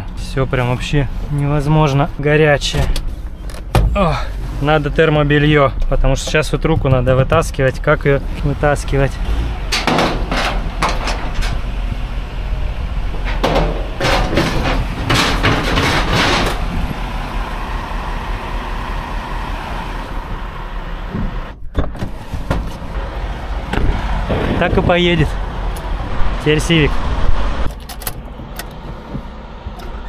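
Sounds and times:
vehicle engine running: 0:00.0 - 0:30.0
rattling noise: 0:00.2 - 0:30.0
metallic clanks and knocks: 0:09.7 - 0:11.6, 0:13.2 - 0:16.8.

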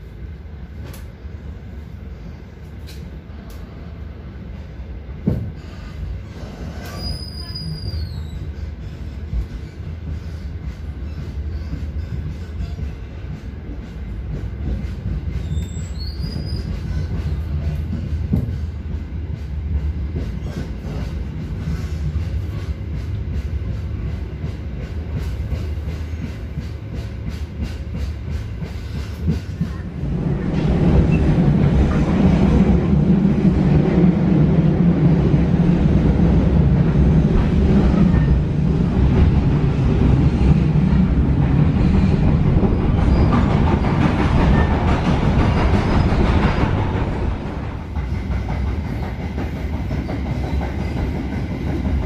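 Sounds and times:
train wheels rumbling: 0:00.0 - 0:52.0
rail clicks: 0:00.7 - 0:01.3, 0:02.6 - 0:04.6, 0:05.2 - 0:52.0
high-pitched wheel squeals: 0:06.8 - 0:08.6, 0:15.4 - 0:17.1.

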